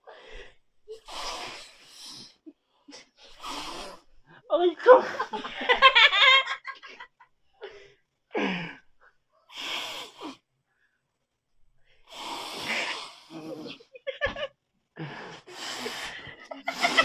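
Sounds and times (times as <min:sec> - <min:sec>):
breathy puffs and gasps: 0:00.1 - 0:04.4, 0:07.6 - 0:10.4, 0:12.0 - 0:13.9, 0:15.0 - 0:17.0
shrill cackling laughter: 0:16.4 - 0:17.0.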